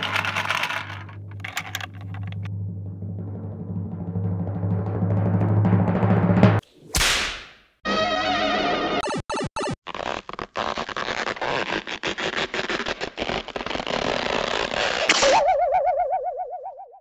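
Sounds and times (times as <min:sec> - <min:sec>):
clattering commotion: 0:00.0 - 0:02.5
wavering wobbling tone: 0:15.2 - 0:17.0.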